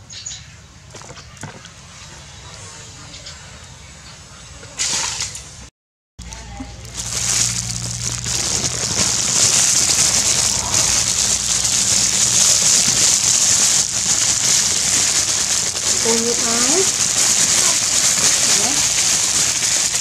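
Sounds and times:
low hum: 6.2 - 17.0
crackling hiss: 6.2 - 20.0.

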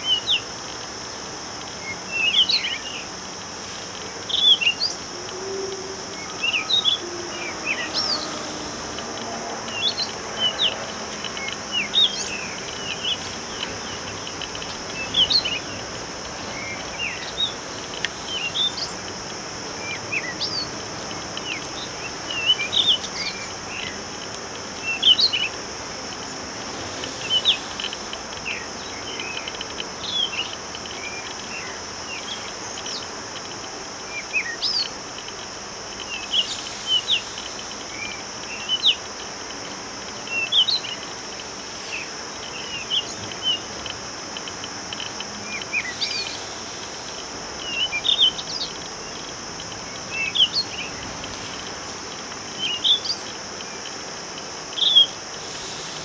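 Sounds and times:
high-pitched insect drone: 0.0 - 56.0
birds chirping: 4.2 - 24.1.

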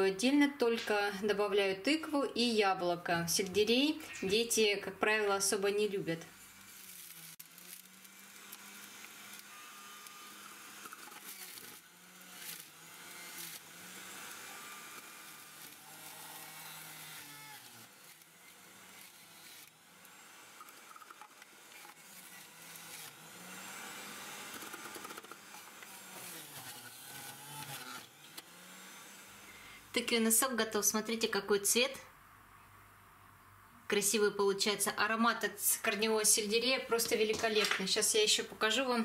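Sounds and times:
juicer motor hum: 6.4 - 29.9
produce crunching: 6.6 - 28.5.

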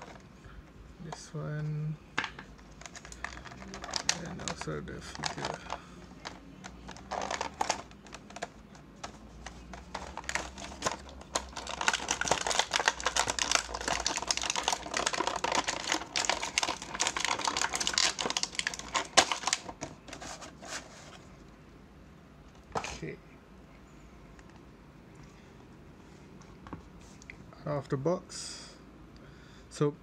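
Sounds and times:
plastic packaging crinkling: 2.5 - 21.2.

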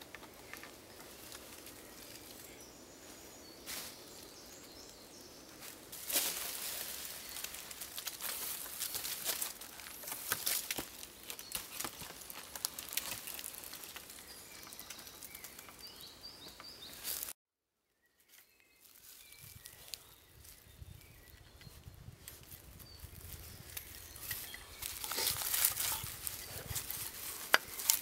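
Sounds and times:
bird chirping: 0.0 - 5.8, 14.1 - 17.2, 22.7 - 27.8
dry leaves crackling and rustling: 0.0 - 16.1, 16.8 - 17.4, 18.4 - 28.0.

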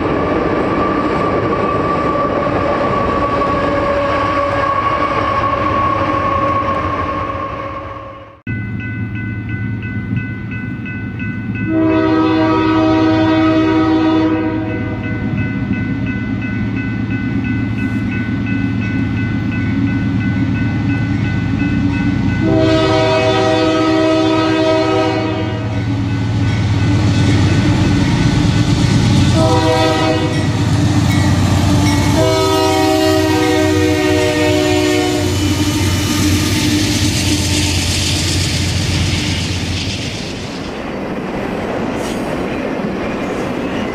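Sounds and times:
train wheels and cars rushing: 0.0 - 8.6, 9.2 - 43.9
train air horn blasts: 11.7 - 15.0, 22.4 - 26.0, 29.3 - 39.6.

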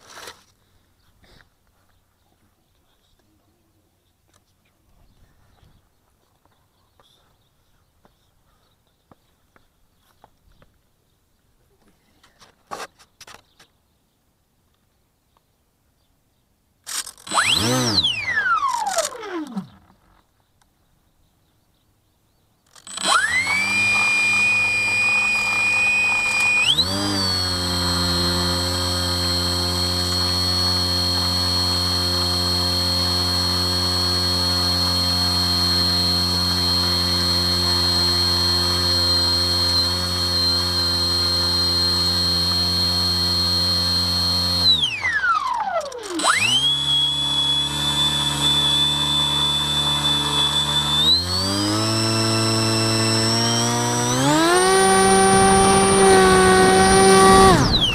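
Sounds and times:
model plane motor whining: 16.9 - 20.3, 22.7 - 57.9.

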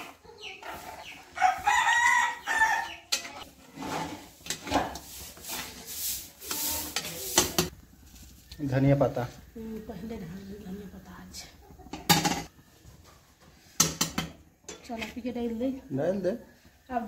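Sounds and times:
metal ladle scraping a pot: 0.0 - 1.4, 3.1 - 8.2
rooster crowing: 1.4 - 3.0.

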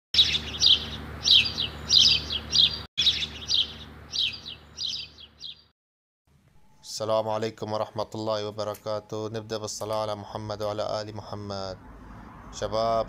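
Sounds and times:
small birds chirping: 0.2 - 5.8.

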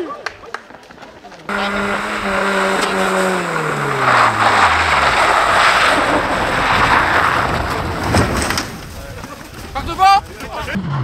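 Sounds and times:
tyres rushing on snowy road: 0.7 - 10.8
car engine slowing: 1.5 - 9.7.

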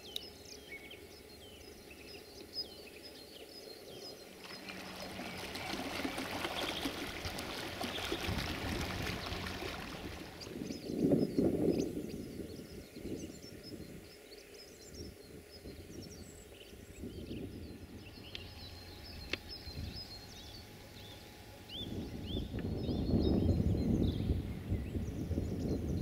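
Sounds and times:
small birds chirping: 0.0 - 26.0
rushing wind or river: 4.4 - 14.0.

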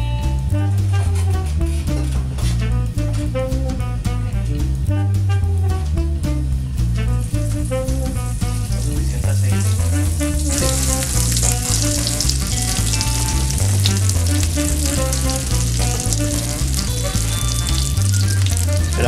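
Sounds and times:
background music with bass line: 0.0 - 19.0
fish sizzling in oil: 7.2 - 19.0.

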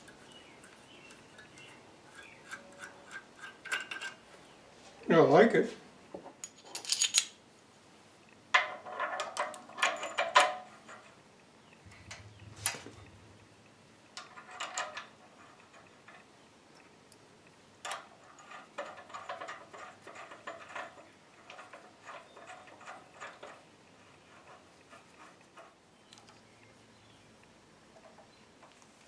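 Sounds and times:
light metallic clicks and clinks: 9.0 - 11.1.

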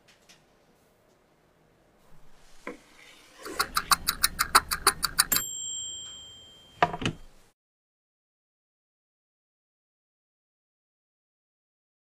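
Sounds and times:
kitchen timer ticking: 3.5 - 6.2
bell ding: 5.3 - 7.3.

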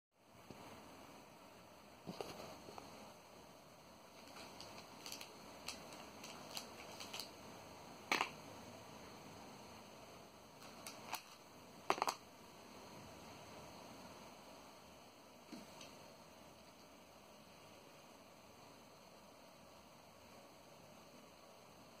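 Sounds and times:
cellophane bag rustling: 4.1 - 7.4.

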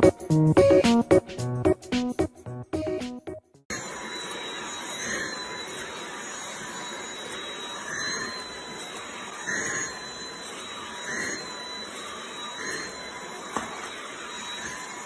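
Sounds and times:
vacuum cleaner motor whine: 3.7 - 15.0.

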